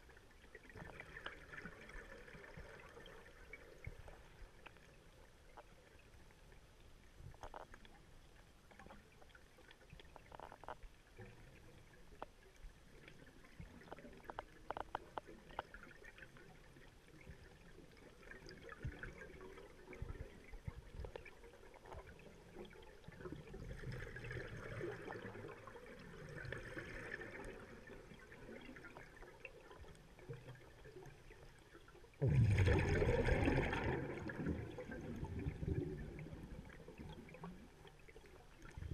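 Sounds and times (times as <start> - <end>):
underwater clicks and crackles: 0.0 - 38.9
exhaled bubbles rushing: 32.2 - 37.4.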